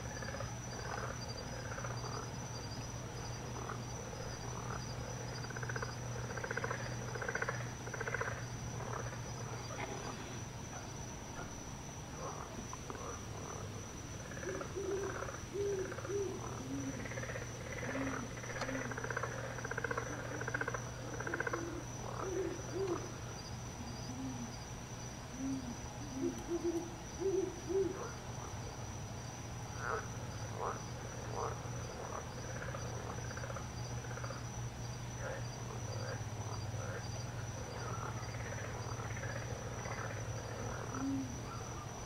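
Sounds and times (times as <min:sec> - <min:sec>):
insect trill: 0:00.0 - 0:42.0
hoot-like calls: 0:14.4 - 0:17.0, 0:17.8 - 0:19.0, 0:21.1 - 0:23.1, 0:23.8 - 0:24.6, 0:25.4 - 0:28.1, 0:40.9 - 0:41.9.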